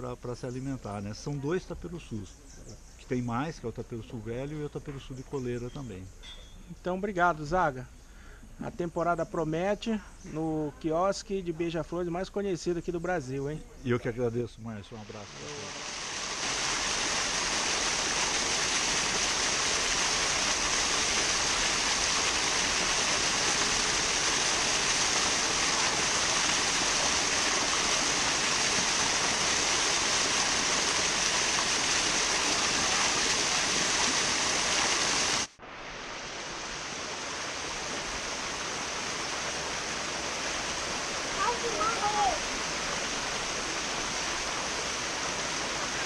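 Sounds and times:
waterfall rushing over rocks: 15.0 - 46.0.

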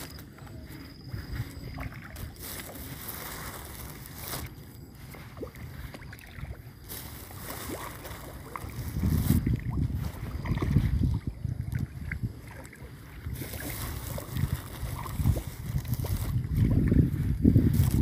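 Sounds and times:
wind buffeting microphone: 5.0 - 18.0.

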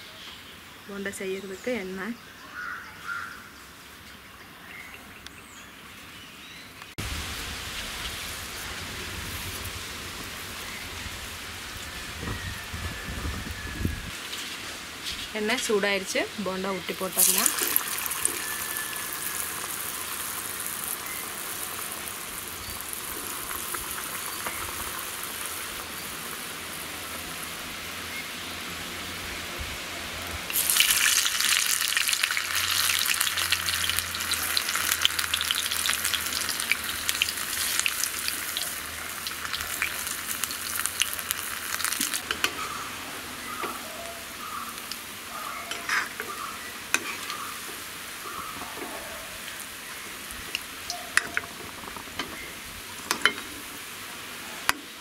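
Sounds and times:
batter sizzling in hot oil: 11.7 - 28.8, 30.5 - 48.6
oil crackling: 17.0 - 27.7, 30.5 - 48.6.

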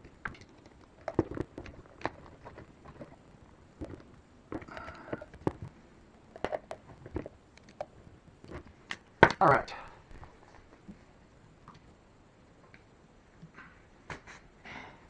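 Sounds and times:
small parts clicking and tapping: 0.0 - 11.0.

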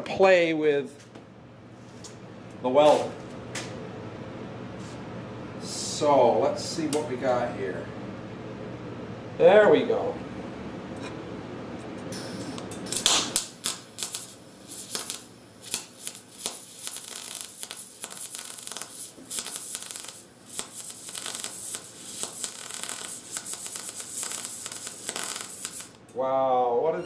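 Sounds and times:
welding arc crackling: 12.1 - 26.0.

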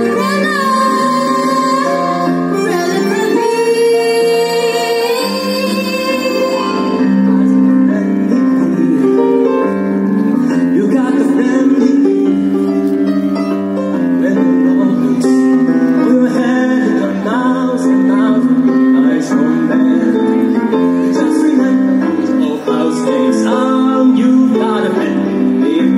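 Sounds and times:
woman singing: 0.0 - 7.1
keyboard: 0.0 - 25.9
man singing: 0.0 - 25.9.

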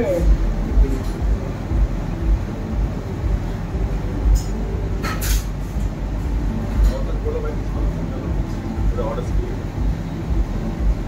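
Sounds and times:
exhaust fan rumbling: 0.0 - 11.0.

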